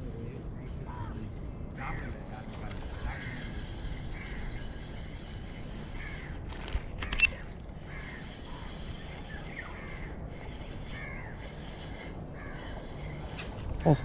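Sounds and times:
crow cawing: 0.9s - 1.2s, 2.9s - 4.9s, 5.8s - 6.5s, 7.2s - 8.9s, 9.5s - 13.5s.

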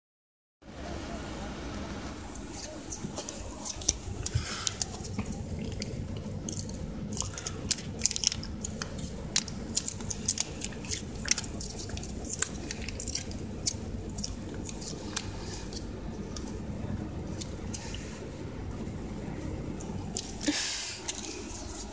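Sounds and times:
steady low hum: 0.7s - 21.9s
wet squishing: 2.6s - 16.6s.

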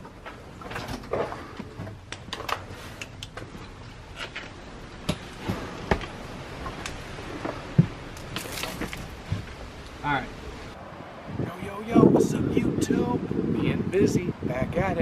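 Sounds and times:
footsteps crunching on rubble: 3.4s - 9.6s.

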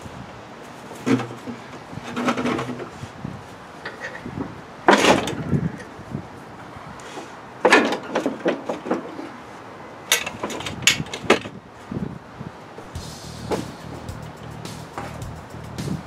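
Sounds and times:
steel parts clanking and knocking: 7.6s - 9.2s.

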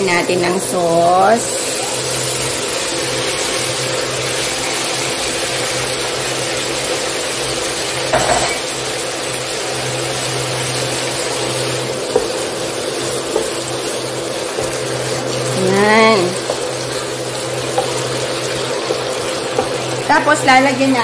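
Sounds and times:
food sizzling in a frying pan: 0.0s - 21.0s.

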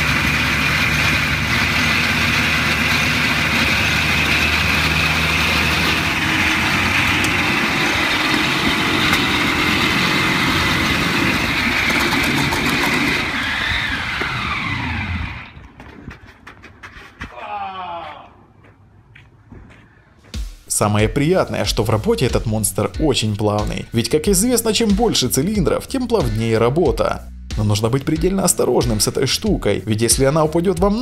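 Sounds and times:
motorcycle engine running: 0.0s - 16.6s.

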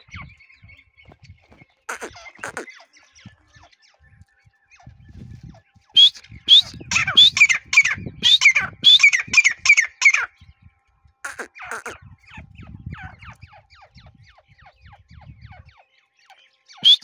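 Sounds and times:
bird calling rising notes: 1.9s - 2.7s, 6.0s - 10.3s, 11.3s - 12.0s, 16.8s - 17.0s.

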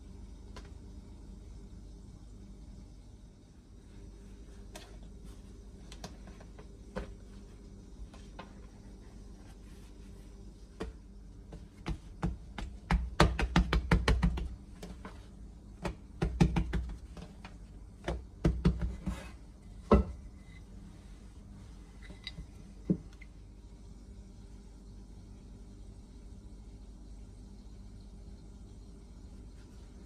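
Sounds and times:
hands patting bread dough: 4.6s - 20.2s
rolling pin knocking on counter: 11.6s - 14.6s, 15.8s - 17.4s, 18.0s - 19.3s, 19.9s - 20.2s.

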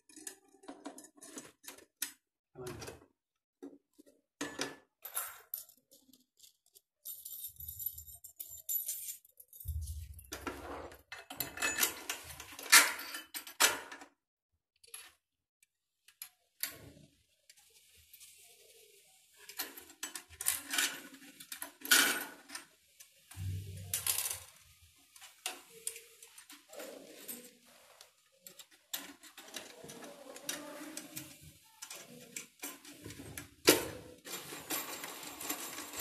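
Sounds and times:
metal shower fittings clinking: 4.4s - 10.5s, 19.5s - 36.0s.

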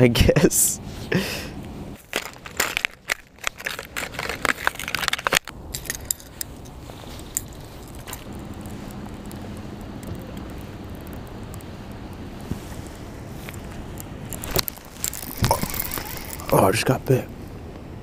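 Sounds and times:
plastic packaging crinkling: 2.0s - 11.6s, 14.3s - 16.7s
steady background hiss: 3.9s - 18.0s.

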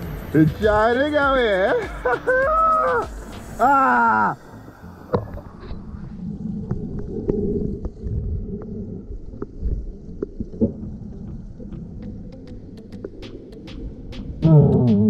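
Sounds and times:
muffled underwater water rumble: 4.4s - 15.0s.

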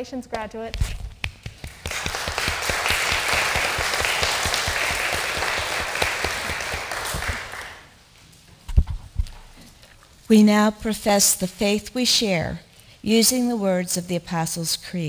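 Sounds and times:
congregation applauding: 1.7s - 8.0s.

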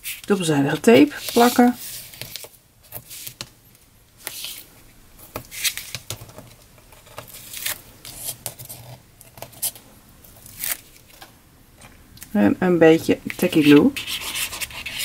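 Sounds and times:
paper rustling: 1.0s - 3.5s
tape ripping: 10.5s - 11.1s.

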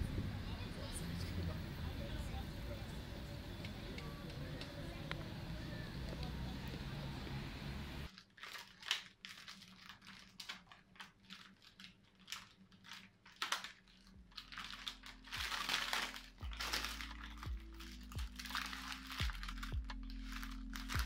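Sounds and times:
outdoor background hiss: 0.0s - 8.1s
paper packet crinkling: 8.1s - 21.0s.

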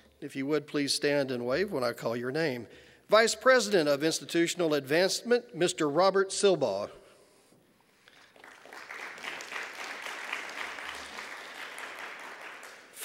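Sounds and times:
audience applauding: 8.1s - 13.0s.

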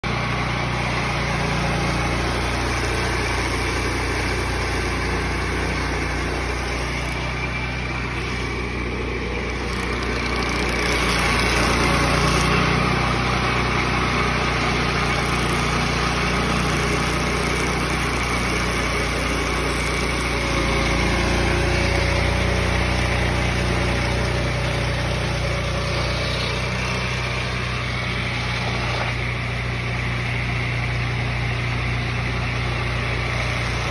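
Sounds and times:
saw blade cutting log: 0.0s - 33.9s
sawmill engine running: 0.0s - 33.9s.

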